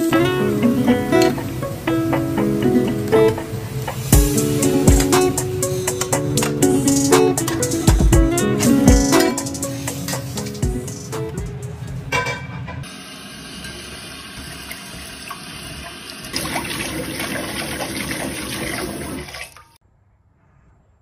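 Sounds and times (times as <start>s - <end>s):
tap water running into pot: 12.8s - 19.8s.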